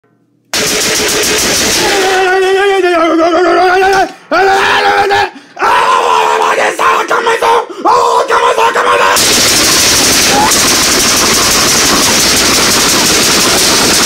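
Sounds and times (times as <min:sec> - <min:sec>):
person yelling: 0:01.6 - 0:09.2, 0:10.1 - 0:11.4
harsh burst of noise: 0:09.2 - 0:14.0.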